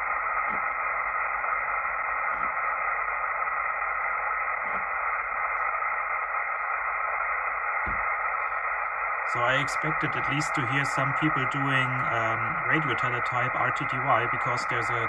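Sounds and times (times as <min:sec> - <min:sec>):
radio static hiss: 0:00.0 - 0:15.0.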